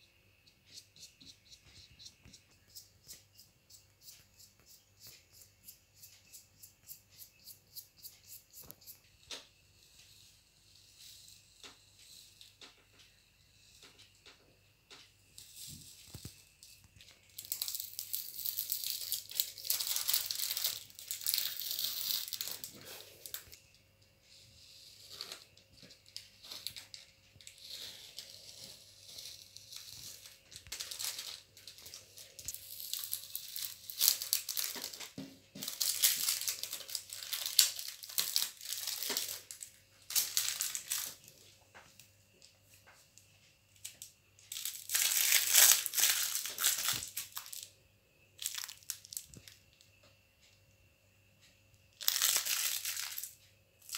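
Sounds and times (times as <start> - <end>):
crinkling handling noise: 14.9 - 23.6, 25.1 - 43.0, 43.8 - 47.7, 48.4 - 49.6, 52.0 - 53.3.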